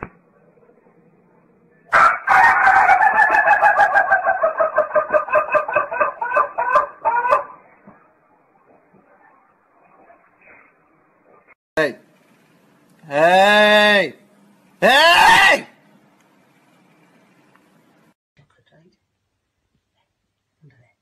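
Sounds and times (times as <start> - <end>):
rooster crowing: 1.9 - 7.6.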